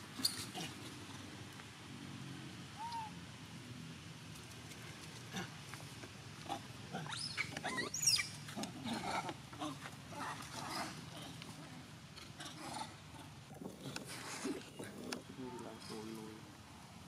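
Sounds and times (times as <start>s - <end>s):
monkey short calls: 2.8s - 3.2s
monkeys shrieking: 2.8s - 3.2s, 6.5s - 9.3s.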